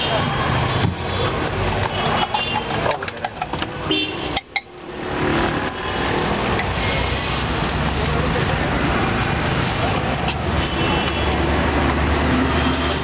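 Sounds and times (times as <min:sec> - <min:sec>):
passing traffic: 0:00.0 - 0:13.0
sharp clicks and knocks: 0:00.8 - 0:03.8.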